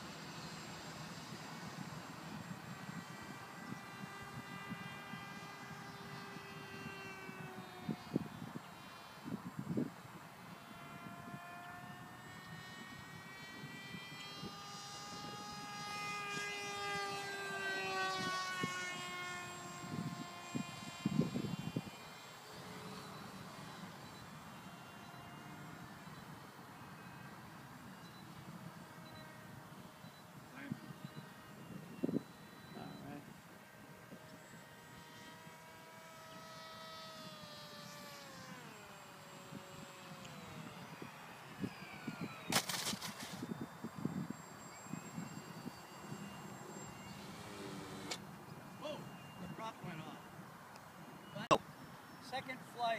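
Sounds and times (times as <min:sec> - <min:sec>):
model plane motor whining: 0:00.0 - 0:52.9.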